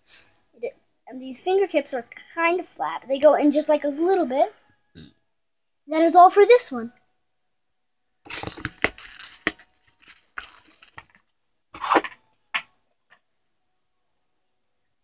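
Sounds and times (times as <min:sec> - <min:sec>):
rustling: 0:08.3 - 0:11.2
objects clicking and knocking: 0:08.3 - 0:12.8.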